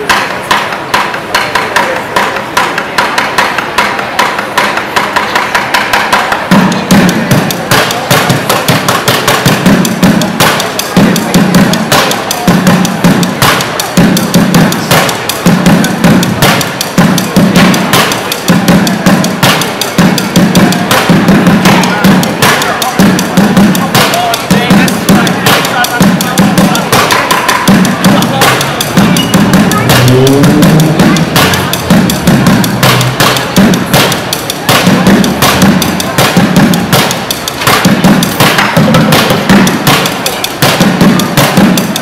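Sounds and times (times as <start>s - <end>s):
rapid stick hits on drums: 0.0s - 42.0s
pulsing low bass: 29.0s - 33.2s.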